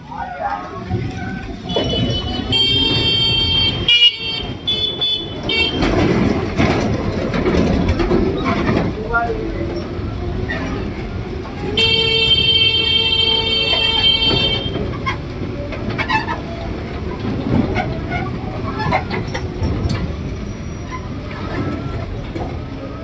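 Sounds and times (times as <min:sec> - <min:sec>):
loaders rumbling over dirt: 0:00.0 - 0:23.0.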